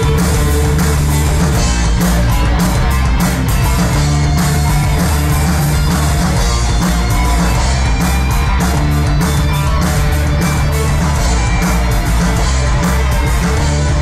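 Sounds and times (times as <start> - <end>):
bass guitar: 0.0 - 14.0
distorted electric guitars: 0.0 - 14.0
drums with cymbal hits: 0.0 - 14.0.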